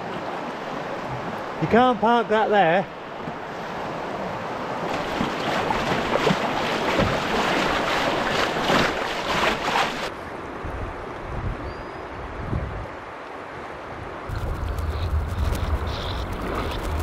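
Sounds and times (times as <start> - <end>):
river water rushing and splashing: 0.0 - 11.2, 12.2 - 17.0
wind buffeting microphone: 14.3 - 17.0.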